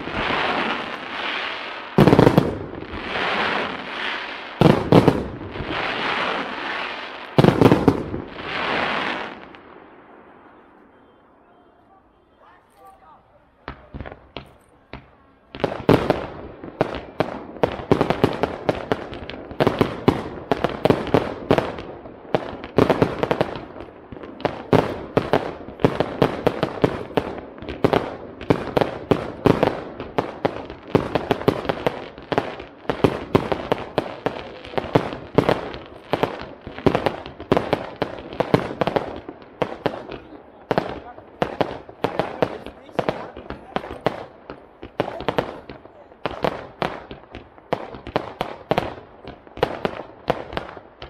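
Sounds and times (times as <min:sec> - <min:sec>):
fireworks bursting: 0:00.0 - 0:51.0.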